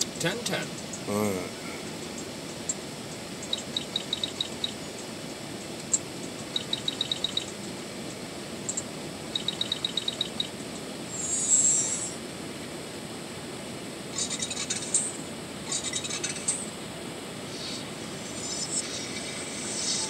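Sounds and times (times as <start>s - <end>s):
small animal chirping trills: 3.4s - 4.9s, 5.9s - 7.6s, 8.7s - 10.6s
high hiss: 11.0s - 12.3s, 17.4s - 20.0s.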